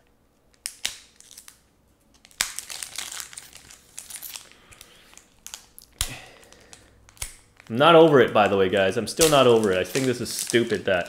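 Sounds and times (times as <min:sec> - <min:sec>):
foil wrapper tearing and crinkling: 0:00.5 - 0:11.0.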